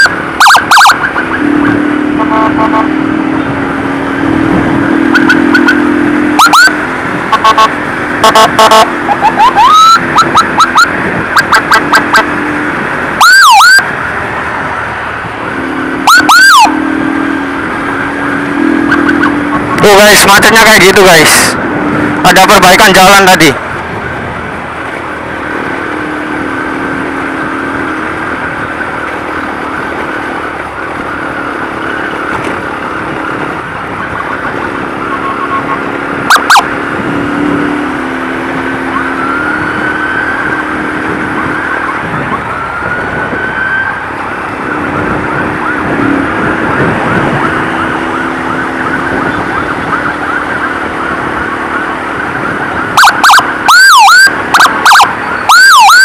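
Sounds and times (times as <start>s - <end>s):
loud siren blip: 0.0s - 3.6s, 4.2s - 12.4s, 13.2s - 14.0s, 15.6s - 17.4s, 18.3s - 20.7s, 35.0s - 37.0s, 38.6s - 56.0s
rising siren sweeps: 0.0s - 12.3s, 13.0s - 14.0s, 15.5s - 23.6s, 34.0s - 56.0s
emergency siren warbling: 0.0s - 14.1s, 15.2s - 23.6s, 25.6s - 56.0s
engine and traffic noise: 0.0s - 56.0s.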